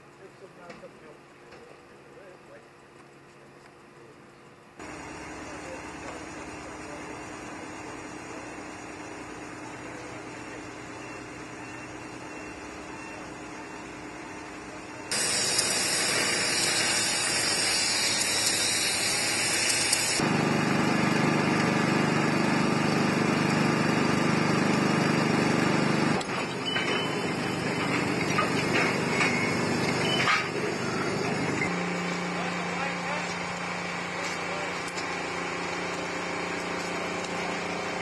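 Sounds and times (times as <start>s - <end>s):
machine drone: 4.8s - 38.0s
loud hiss: 15.1s - 20.2s.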